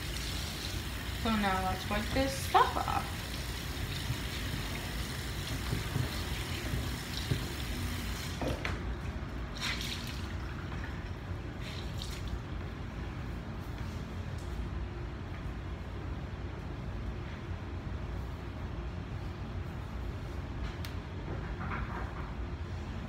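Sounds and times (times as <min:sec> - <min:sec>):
water running at a sink: 0:00.0 - 0:08.8, 0:09.5 - 0:12.4.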